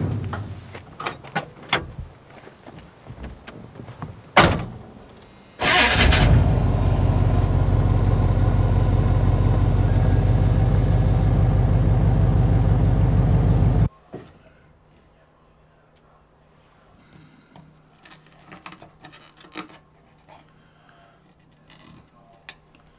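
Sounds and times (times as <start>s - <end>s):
truck door slamming: 4.4s - 4.8s
engine cranking and running: 5.6s - 13.9s.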